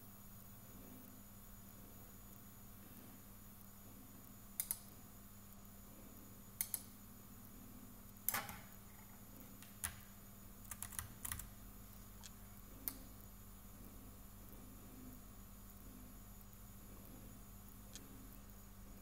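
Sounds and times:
steady low hum: 0:00.0 - 0:19.0
faint sharp clicks: 0:04.6 - 0:04.9, 0:06.6 - 0:06.9, 0:12.2 - 0:13.0.

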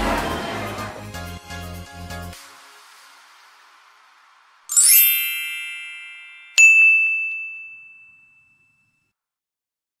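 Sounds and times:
shimmering sparkling chime: 0:04.7 - 0:08.8
bright ding: 0:04.7 - 0:09.0.

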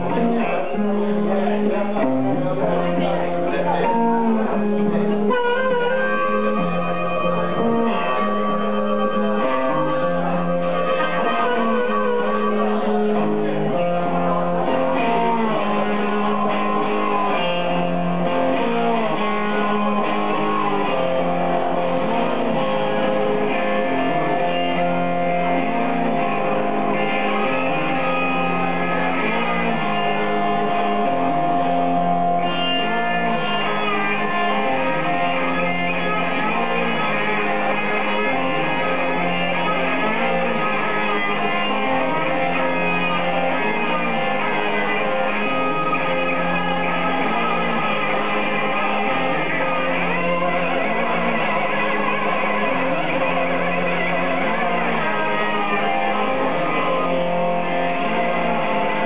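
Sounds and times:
blues guitar playing: 0:00.0 - 0:59.0.

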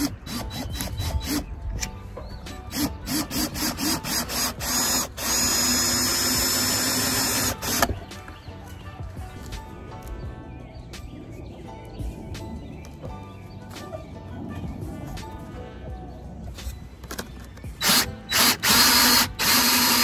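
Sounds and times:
cordless drill driving screws: 0:02.7 - 0:08.0, 0:17.8 - 0:20.0.

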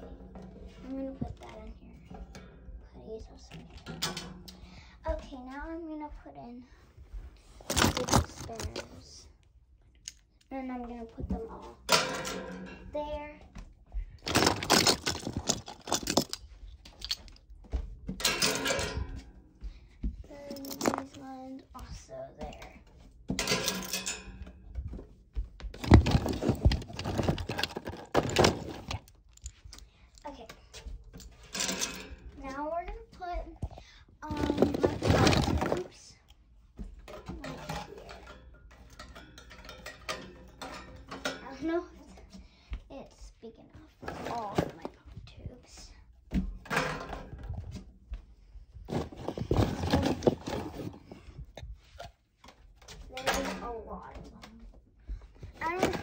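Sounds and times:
toys clattering in metal basket: 0:03.4 - 0:04.6, 0:07.5 - 0:09.2, 0:11.2 - 0:13.2, 0:14.2 - 0:17.4, 0:18.1 - 0:19.2, 0:20.4 - 0:21.3, 0:23.3 - 0:24.5, 0:25.8 - 0:29.6, 0:30.2 - 0:32.6, 0:34.2 - 0:36.1, 0:37.1 - 0:41.8, 0:44.0 - 0:44.9, 0:46.6 - 0:47.6, 0:48.9 - 0:51.1, 0:53.0 - 0:54.3, 0:55.6 - 0:56.0.

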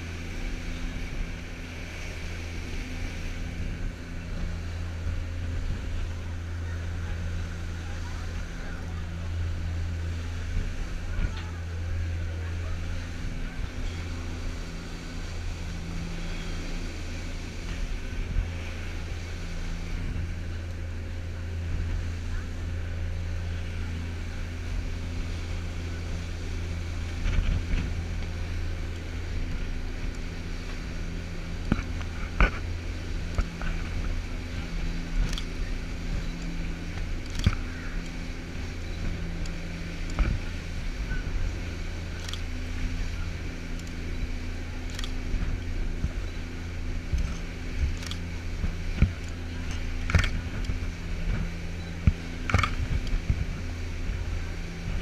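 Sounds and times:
boat engines droning: 0:00.0 - 0:55.0
rush of boat wake: 0:00.0 - 0:55.0
wind: 0:00.0 - 0:55.0
sharp clicks and knocks: 0:52.0 - 0:53.4.

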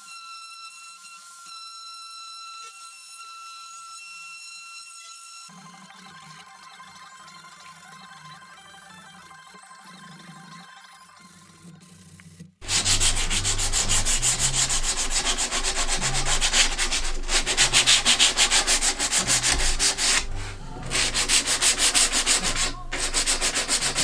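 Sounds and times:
sandpaper rasping on wood: 0:11.4 - 0:24.0.

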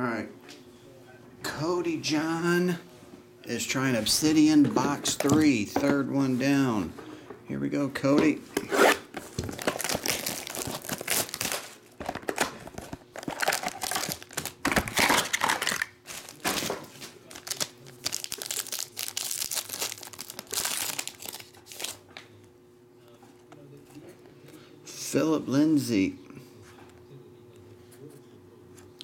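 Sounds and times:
plastic and foil crinkling: 0:09.2 - 0:22.1.

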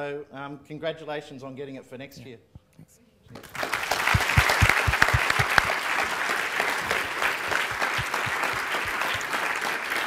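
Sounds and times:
audience applauding: 0:03.4 - 0:10.0.

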